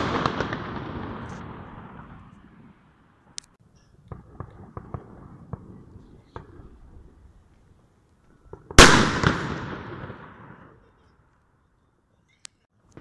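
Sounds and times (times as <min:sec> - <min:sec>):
distant firework bangs: 0:00.0 - 0:03.4, 0:04.0 - 0:07.2, 0:08.4 - 0:10.9.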